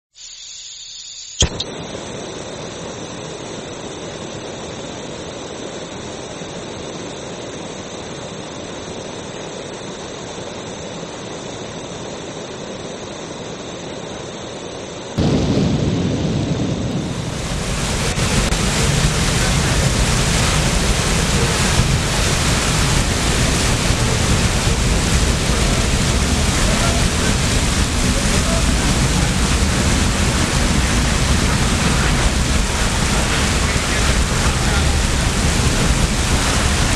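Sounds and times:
click: 1.4s - 1.7s
torch flame hissing: 1.4s - 36.9s
large fire rushing: 15.2s - 36.9s.

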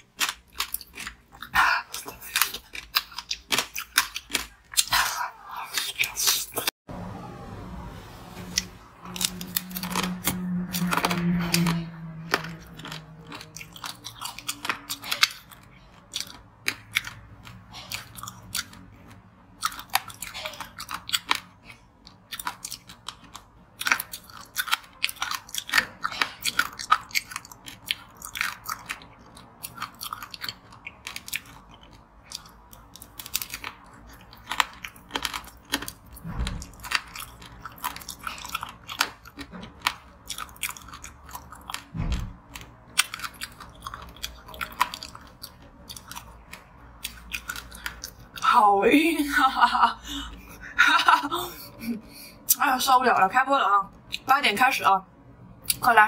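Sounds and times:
crunching frozen treat: 9.0s - 48.6s.

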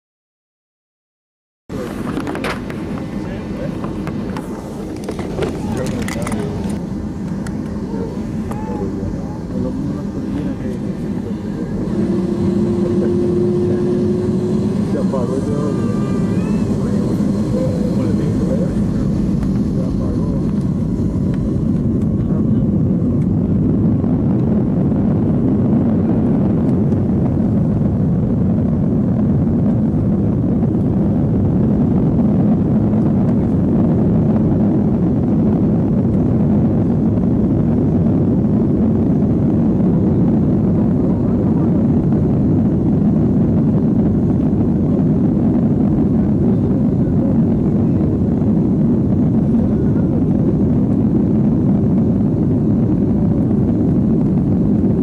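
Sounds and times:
jet engine noise: 1.7s - 55.0s
airframe and wheels roaring: 1.8s - 23.8s.

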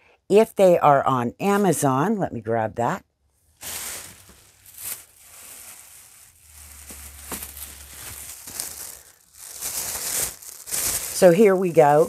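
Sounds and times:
plastic bag crinkling: 3.5s - 12.0s.

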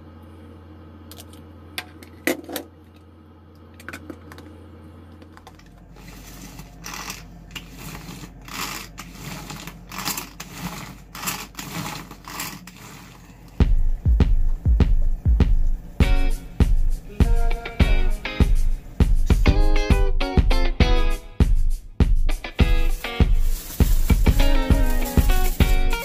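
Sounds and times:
pull-cord chopper whirring rattle: 6.0s - 13.5s.

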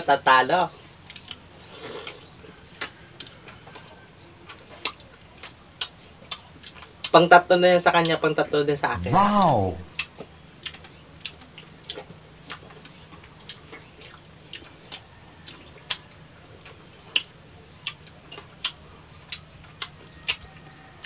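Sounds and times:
wet eating clicks and lip smacks: 4.8s - 7.2s, 10.0s - 16.2s, 17.1s - 20.5s
faint low hum: 8.8s - 10.0s.

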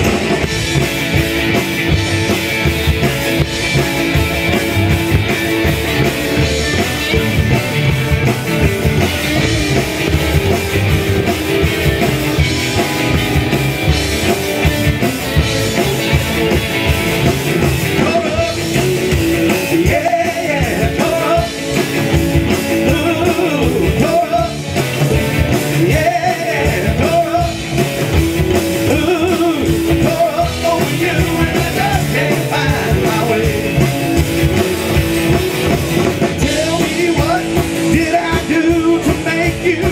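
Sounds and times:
live rockabilly band: 0.0s - 39.9s
lead vocal singing: 17.9s - 21.8s, 22.8s - 24.7s, 25.6s - 27.7s, 28.8s - 34.0s, 36.2s - 39.9s.

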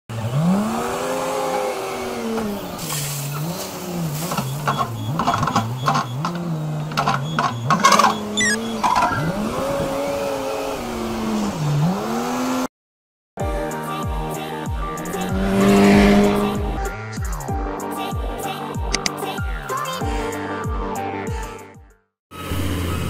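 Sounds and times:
diesel engine revving: 0.1s - 12.7s, 14.9s - 17.6s, 22.4s - 23.0s.

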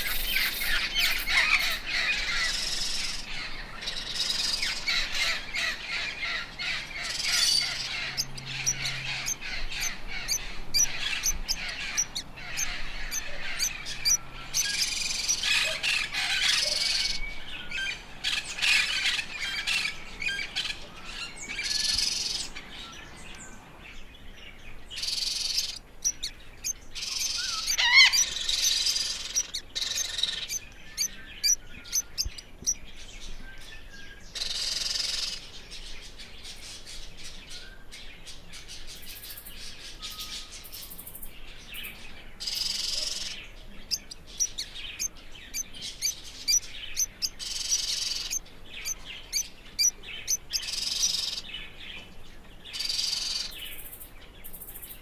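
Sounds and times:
parrots squawking: 0.0s - 17.2s, 25.0s - 32.8s, 42.5s - 51.4s.

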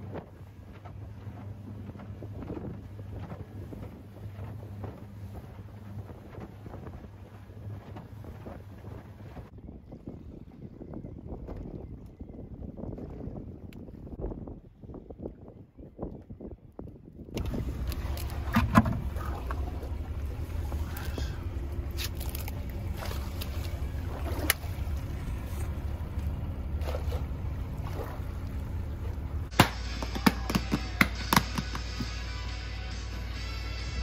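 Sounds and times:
steady low rumble: 16.5s - 34.0s
knocks of things being handled: 29.6s - 32.1s.

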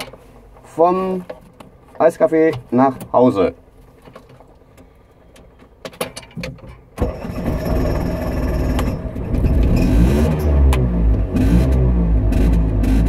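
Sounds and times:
two-stroke engine starting and revving: 7.0s - 13.0s.

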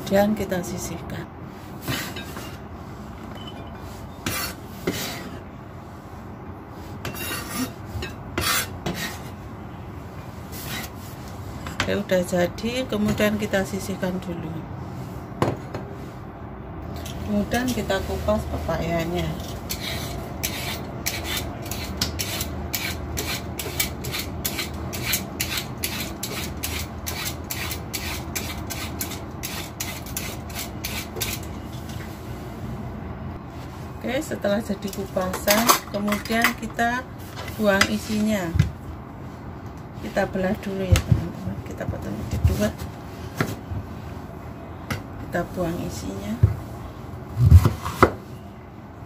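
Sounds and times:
knife scraping on cutting board: 4.1s - 5.4s, 7.0s - 9.4s, 10.5s - 11.0s, 19.4s - 31.9s.

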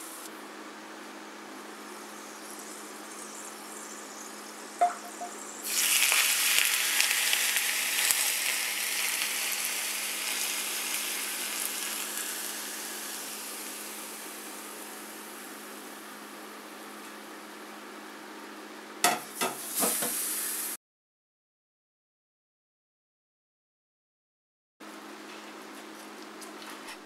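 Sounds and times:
hot oil sizzling: 0.0s - 0.3s, 4.7s - 17.3s, 19.0s - 20.8s.

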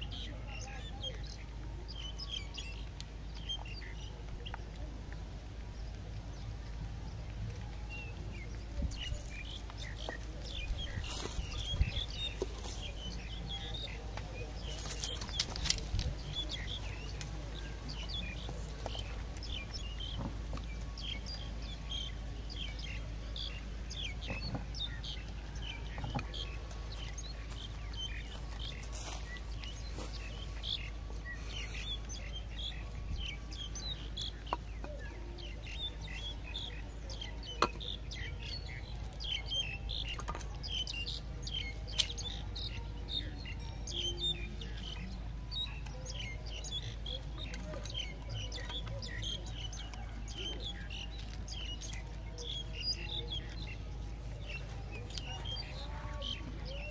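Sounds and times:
bird chirps and tweets: 0.0s - 56.9s.

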